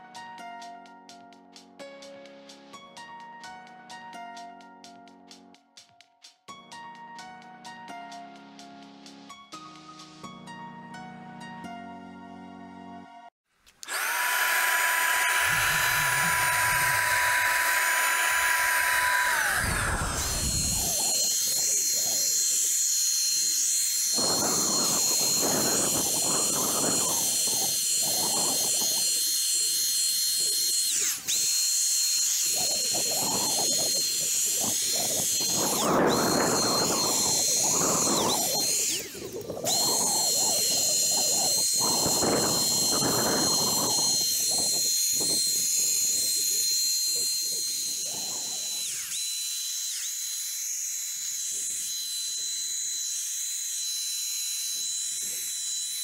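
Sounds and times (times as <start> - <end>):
electric paint sprayer whine: 13.8 - 56.0.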